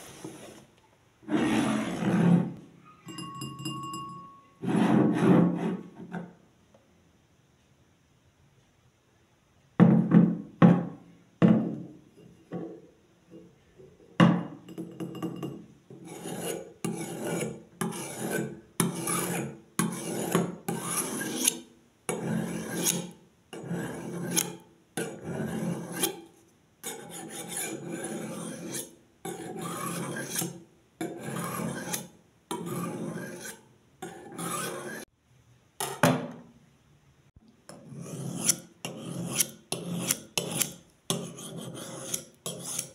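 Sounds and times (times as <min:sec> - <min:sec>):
knife scraping on ceramic: 0:14.7 - 0:35.1, 0:37.7 - 0:42.9.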